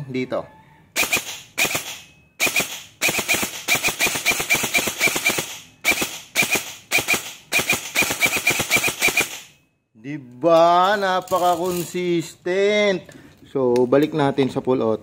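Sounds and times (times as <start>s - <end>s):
airsoft rifle firing: 1.0s - 9.6s.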